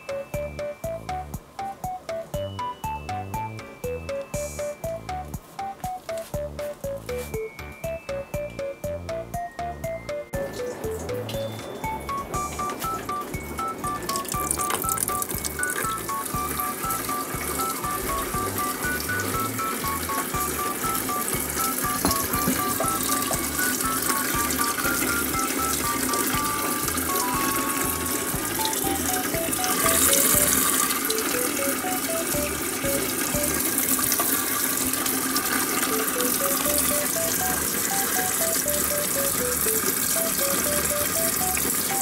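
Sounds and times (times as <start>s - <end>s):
light background music: 0.0s - 42.0s
rushing water: 11.0s - 42.0s.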